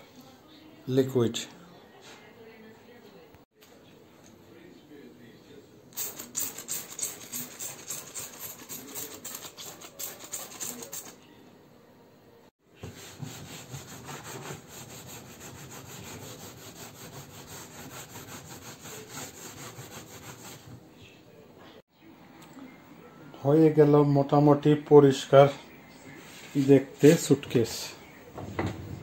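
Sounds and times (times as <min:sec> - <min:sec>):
brush scrubbing hard plastic: 0:06.0 - 0:11.2, 0:12.8 - 0:20.8.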